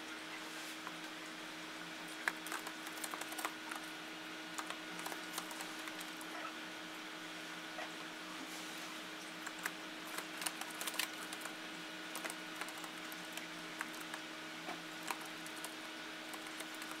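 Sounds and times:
steady low hum: 0:00.0 - 0:17.0
bird feet tapping keyboard keys: 0:02.1 - 0:03.9, 0:04.6 - 0:06.3, 0:09.4 - 0:14.2, 0:15.0 - 0:17.0.

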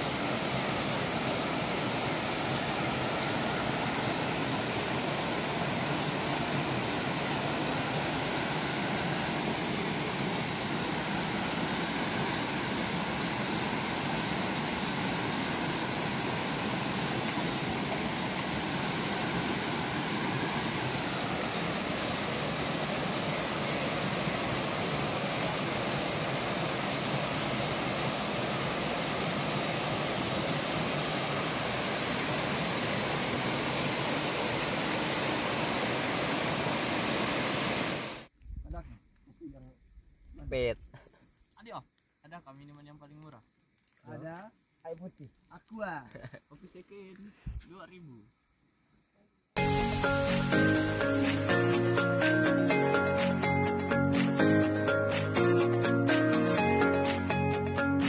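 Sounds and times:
river rushing over rocks: 0:00.0 - 0:38.3.

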